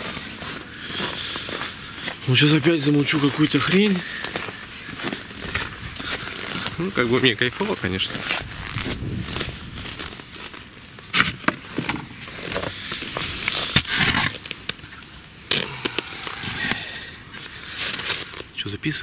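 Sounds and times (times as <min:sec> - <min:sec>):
microphone rubbing on jacket: 0:08.1 - 0:10.5.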